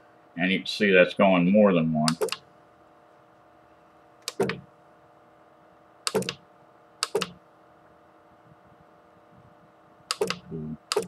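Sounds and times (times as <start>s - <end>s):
faint steady hum: 0.0s - 11.0s
keyboard keys clicking: 2.1s - 2.4s, 6.1s - 6.4s, 7.0s - 7.4s, 10.1s - 11.0s.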